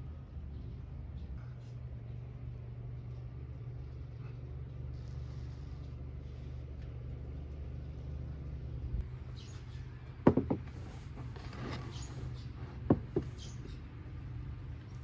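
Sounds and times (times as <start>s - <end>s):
steady low hum: 0.0s - 15.0s
plate knocking on wooden table: 10.2s - 10.6s.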